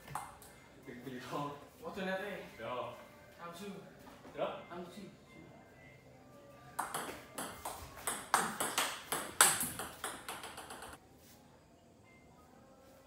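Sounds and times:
table tennis ball clicking: 0:06.8 - 0:11.0.

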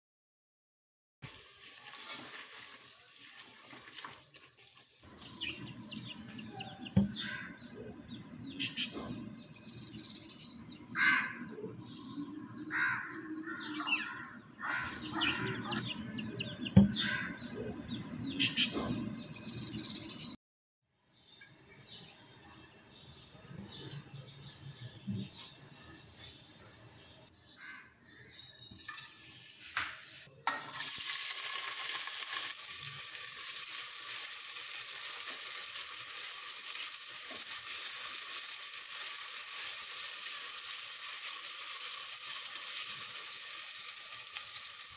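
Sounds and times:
birds chirping: 0:05.0 - 0:20.4, 0:21.2 - 0:30.5.

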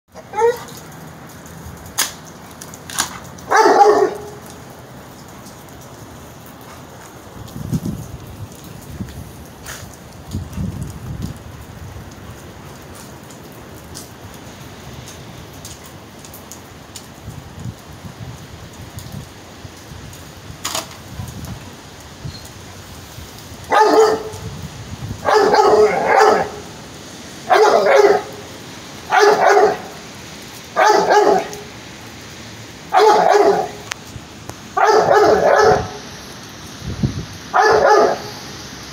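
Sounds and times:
dog barking: 0:00.2 - 0:00.8, 0:03.5 - 0:04.5, 0:23.7 - 0:24.4, 0:25.2 - 0:26.7, 0:27.4 - 0:28.5, 0:29.1 - 0:30.0, 0:30.8 - 0:31.7, 0:32.9 - 0:33.9, 0:34.8 - 0:36.1, 0:37.5 - 0:38.4.

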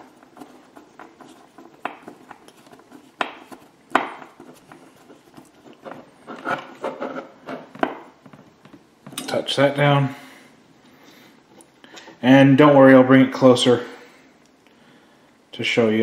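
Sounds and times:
screwdriver scraping and ticking: 0:00.0 - 0:07.7.

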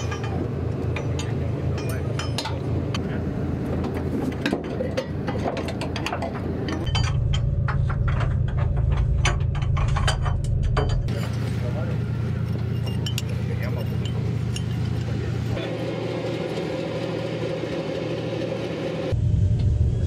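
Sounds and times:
hand tools clinking on metal: 0:00.0 - 0:03.0, 0:12.4 - 0:15.6
low engine drone: 0:00.0 - 0:20.0.

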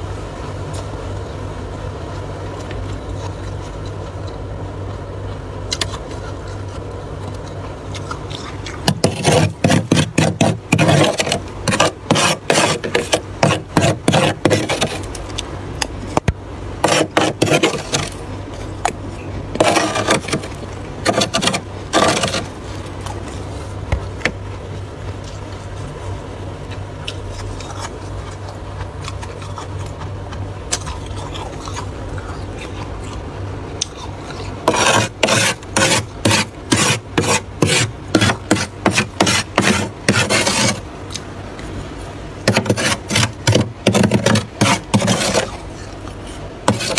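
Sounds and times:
steady low hum: 0:00.0 - 0:46.9
frost being scraped: 0:07.5 - 0:15.2, 0:16.8 - 0:23.9, 0:33.8 - 0:40.9, 0:41.7 - 0:46.9.

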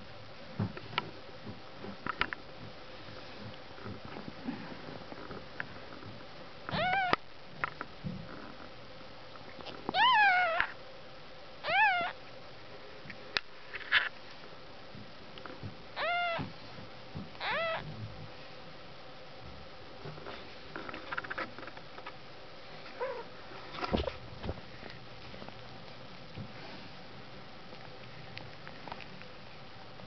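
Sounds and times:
kittens mewing: 0:06.7 - 0:07.2, 0:09.9 - 0:10.8, 0:11.6 - 0:12.2, 0:16.0 - 0:16.5, 0:17.4 - 0:17.9.

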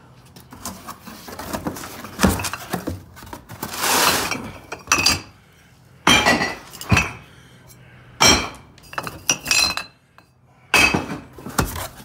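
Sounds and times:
scraping rustle: 0:00.4 - 0:04.5
cardboard box shifted on concrete: 0:00.5 - 0:04.6.

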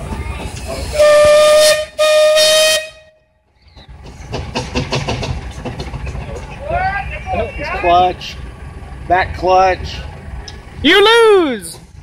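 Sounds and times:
steam engine exhaust beat: 0:00.0 - 0:09.1
steam whistle blasts: 0:01.0 - 0:03.1.

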